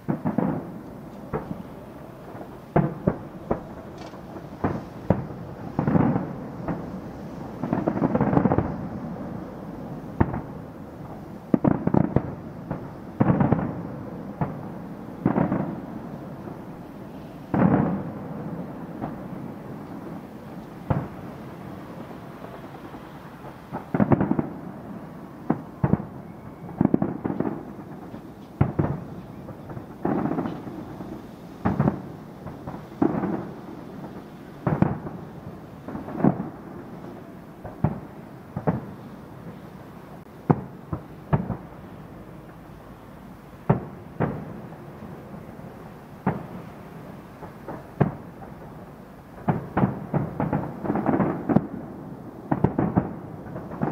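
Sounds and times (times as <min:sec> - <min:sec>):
fireworks shells bursting: 0:25.4 - 0:39.0.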